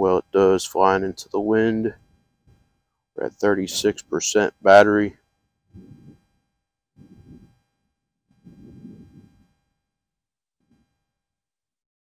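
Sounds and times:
wind buffeting microphone: 5.8 - 6.2, 7.0 - 7.5, 8.5 - 9.4.

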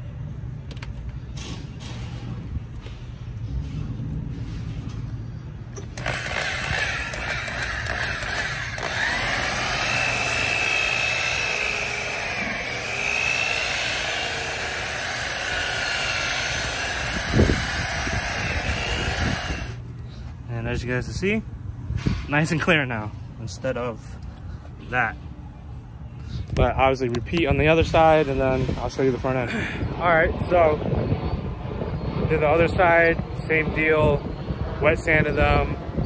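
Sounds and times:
rotary polisher motor whine: 5.9 - 19.8.

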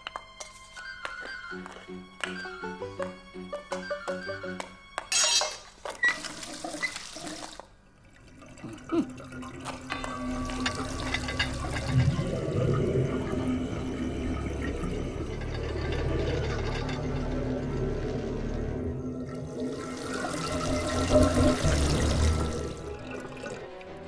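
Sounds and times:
water rushing down sink drain: 5.9 - 24.0.

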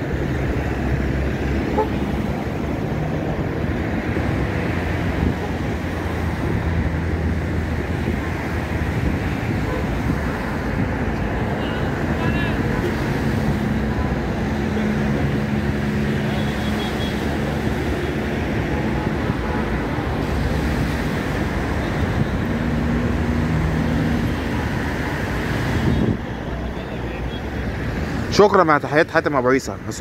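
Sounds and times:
waves breaking on sand: 0.0 - 26.4
road traffic hum: 0.0 - 30.0
wind: 0.0 - 30.0.

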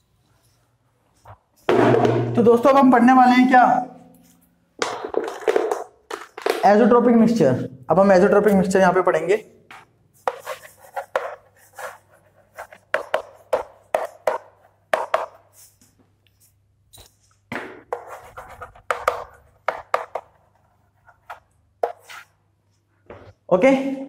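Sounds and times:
chalk scratching on blackboard: 10.2 - 15.8, 17.9 - 22.4.

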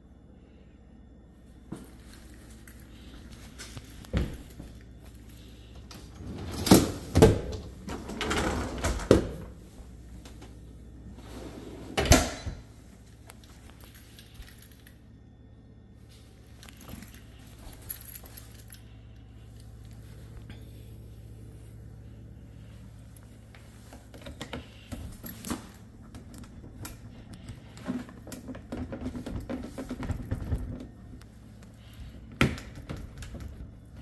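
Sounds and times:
dishwasher racks rattling: 6.1 - 9.6
dishwasher door shutting: 11.8 - 12.7.

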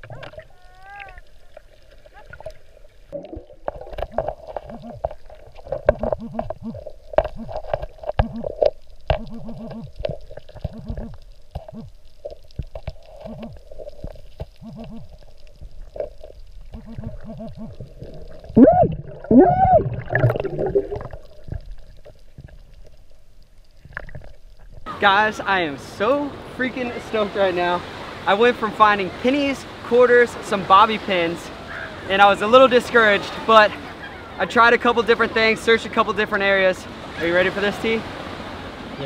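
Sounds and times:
underwater breathing bubbles gurgling: 1.3 - 23.0.

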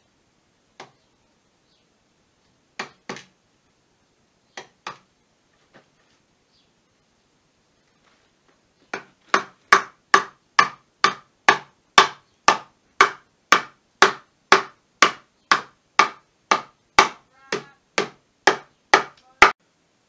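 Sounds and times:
hammer driving nail into wood: 9.0 - 19.6.

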